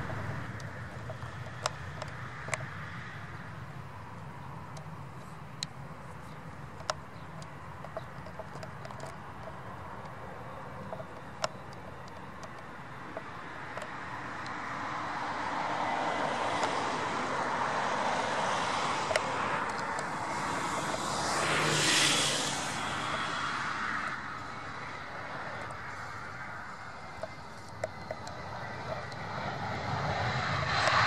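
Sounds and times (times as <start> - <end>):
faint clicks: 4.7 - 10.2, 10.8 - 14.6
jet engines rushing: 15.2 - 31.0.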